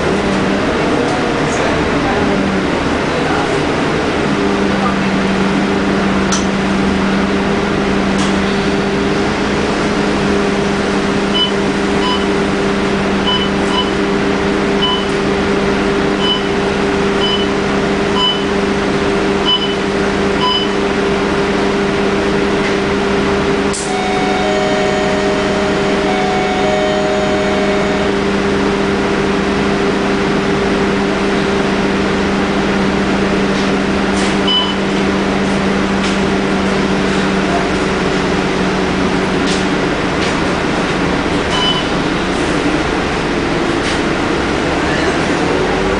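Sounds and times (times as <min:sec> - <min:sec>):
bus engine idling: 0:00.0 - 0:45.9
short electronic beeps: 0:11.4 - 0:12.3, 0:13.3 - 0:14.0, 0:14.8 - 0:15.1, 0:16.2 - 0:16.6, 0:17.2 - 0:17.5, 0:18.2 - 0:18.5, 0:19.4 - 0:19.8, 0:20.4 - 0:20.8, 0:34.5 - 0:34.8, 0:41.5 - 0:41.9
steady electronic tones: 0:23.9 - 0:28.6.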